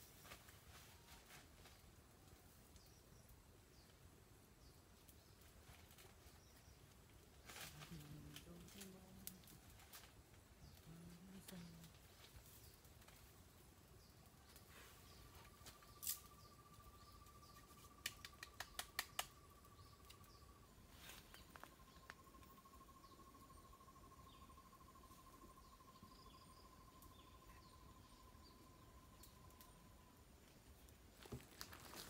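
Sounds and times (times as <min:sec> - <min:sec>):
insect trill: 0:15.3 - 0:30.2
sharp clicks: 0:18.0 - 0:19.4.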